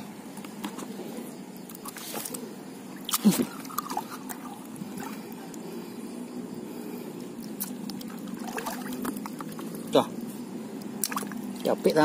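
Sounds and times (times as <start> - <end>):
water trickling: 7.3 - 12.0.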